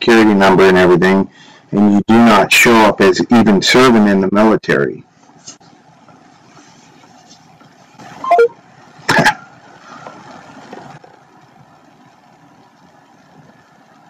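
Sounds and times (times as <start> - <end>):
phone line hiss: 8.2 - 8.6.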